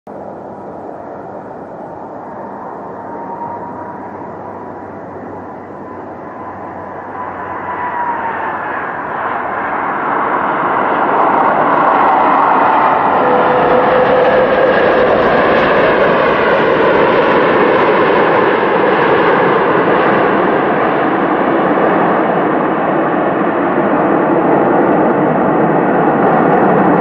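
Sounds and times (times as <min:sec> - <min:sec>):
jet engines whining and rushing: 0:00.1 - 0:27.0.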